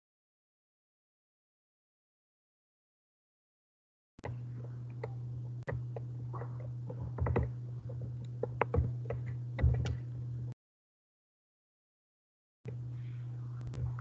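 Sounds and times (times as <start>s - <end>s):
small clicks and taps: 4.2s - 10.0s
microphone hum: 4.2s - 10.5s, 12.7s - 14.0s
knocks: 8.4s - 10.0s.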